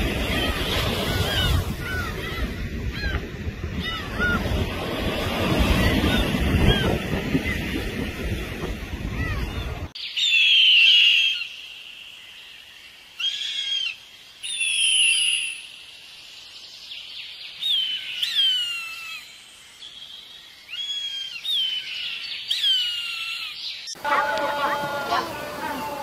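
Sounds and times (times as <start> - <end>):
eagle whistled cries: 10.1 - 12.0, 13.2 - 15.8.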